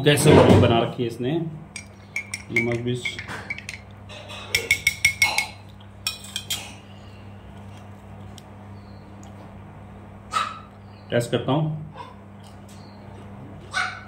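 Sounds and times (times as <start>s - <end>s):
steady low hum: 0.8s - 13.9s
cutlery clinking against dishes: 1.8s - 6.8s.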